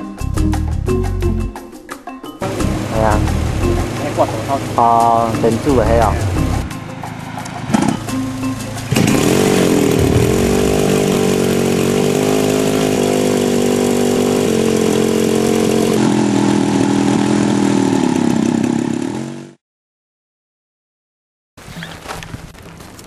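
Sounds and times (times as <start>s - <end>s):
small propeller engine running: 2.4s - 19.6s.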